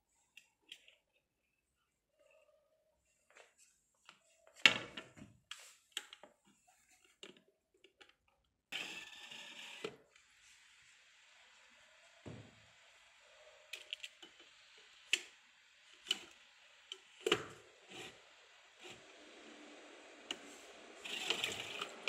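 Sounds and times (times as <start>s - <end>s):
faint steady hiss: 8.8s - 22.0s
hiss: 10.2s - 22.0s.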